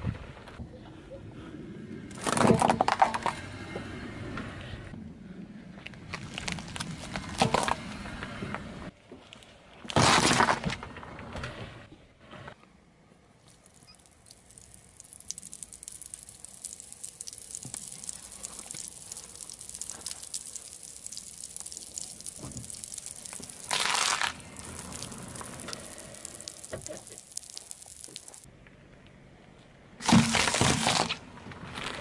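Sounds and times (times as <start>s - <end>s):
candy crackling and fizzing: 13.5s - 28.5s.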